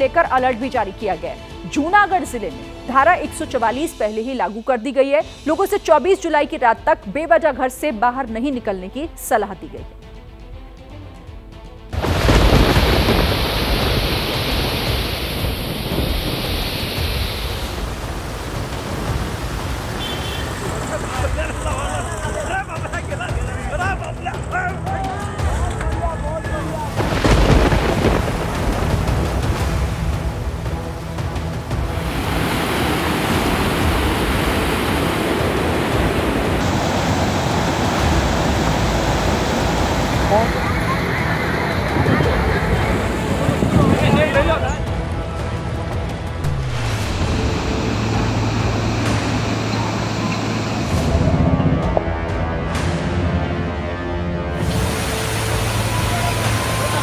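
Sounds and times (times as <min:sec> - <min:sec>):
loud rushing with heavy rumble: 0:12.0 - 0:22.4, 0:26.5 - 0:57.0
low rumble: 0:44.8 - 0:53.5.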